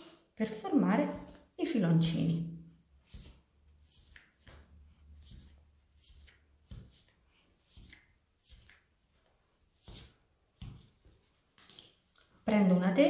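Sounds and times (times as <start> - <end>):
dough scraper scraping and tapping: 3.0 - 8.8.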